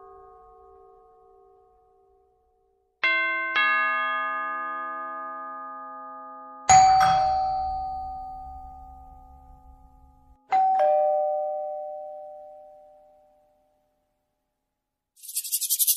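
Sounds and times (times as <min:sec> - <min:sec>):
ding-dong chime tones: 0:05.7 - 0:13.8.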